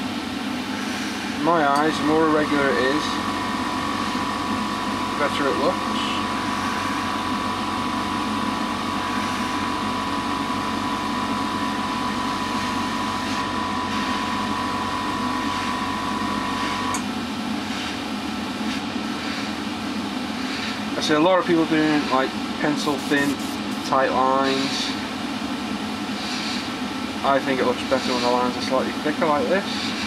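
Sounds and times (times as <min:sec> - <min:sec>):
extractor fan running: 0:00.0 - 0:30.0
steady whine: 0:00.0 - 0:30.0
airbrush air hiss: 0:22.8 - 0:23.9.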